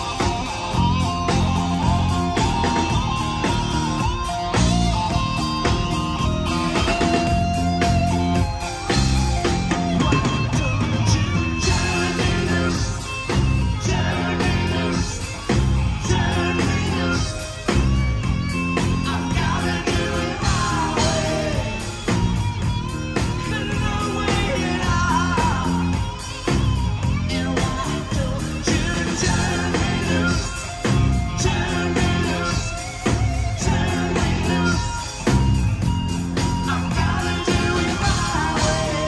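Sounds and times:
bass guitar: 0:00.0 - 0:39.0
drum kit beat: 0:00.0 - 0:39.0
electric guitar: 0:00.0 - 0:39.0
person singing: 0:36.4 - 0:39.0.

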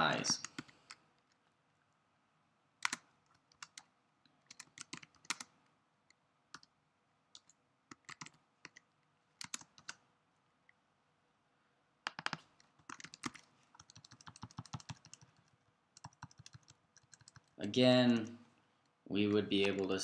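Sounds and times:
typing on computer keyboard: 0:00.3 - 0:01.0, 0:02.8 - 0:03.9, 0:04.5 - 0:05.5, 0:07.4 - 0:10.0, 0:12.1 - 0:18.3.

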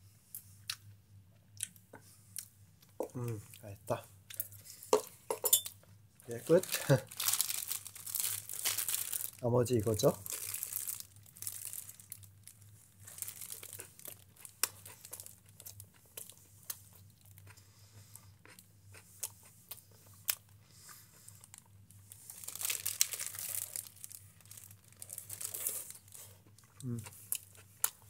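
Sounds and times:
plastic bag crinkling: 0:06.3 - 0:15.4, 0:22.3 - 0:26.2.

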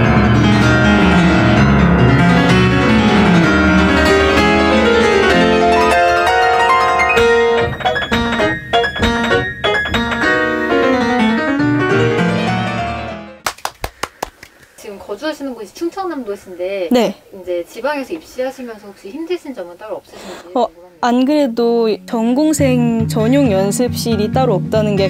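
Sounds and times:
fast classical piano: 0:00.0 - 0:13.4.

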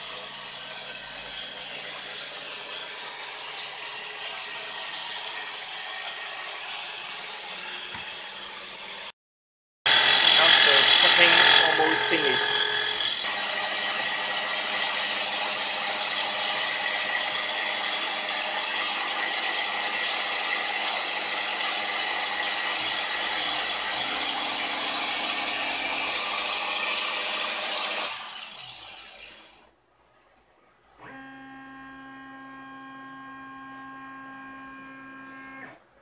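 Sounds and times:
saw blade cutting metal whine: 0:00.0 - 0:09.1, 0:09.9 - 0:29.7
coolant hiss: 0:10.0 - 0:13.2.

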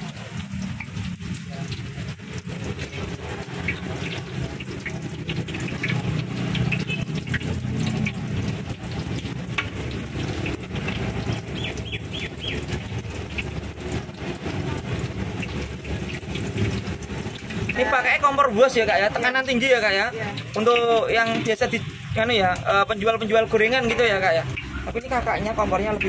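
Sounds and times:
gas stove roaring: 0:00.0 - 0:18.4
fritters sizzling in hot oil: 0:00.0 - 0:26.0.

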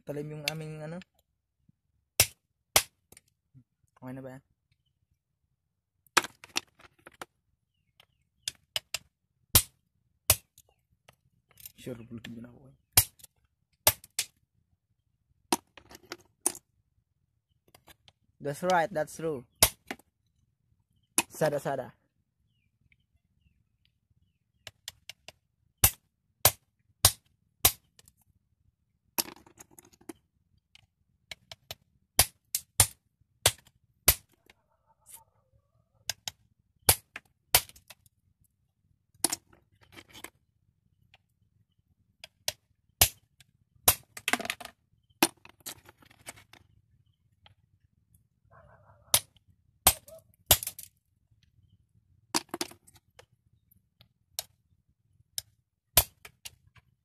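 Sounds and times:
knife chopping shells on wood: 0:02.2 - 0:03.2, 0:08.4 - 0:10.6, 0:12.9 - 0:14.4, 0:19.6 - 0:20.1, 0:24.6 - 0:28.1, 0:31.3 - 0:34.4, 0:36.1 - 0:38.0, 0:56.0 - 0:56.6
shell crunching and scraping: 0:02.2 - 0:04.0, 0:06.0 - 0:14.5, 0:15.4 - 0:16.8, 0:17.5 - 0:18.8, 0:19.5 - 0:20.4, 0:24.5 - 0:28.3, 0:29.1 - 0:35.3, 0:36.0 - 0:38.5, 0:39.1 - 0:54.7, 0:55.3 - 0:57.0.

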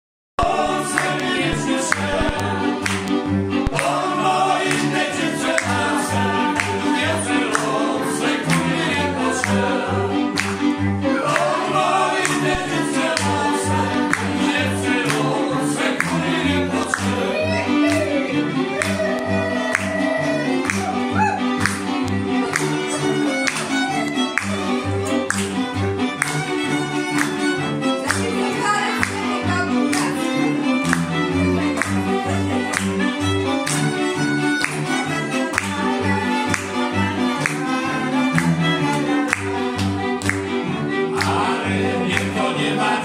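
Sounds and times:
men singing along: 0:00.4 - 0:02.8, 0:41.1 - 0:43.0
bowed folk bass: 0:00.4 - 0:43.0
fiddles playing lively tune: 0:00.4 - 0:43.0.

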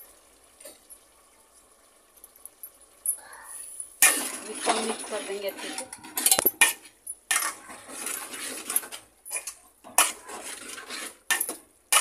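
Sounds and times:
metal spoon scraping a pot: 0:04.0 - 0:12.0.

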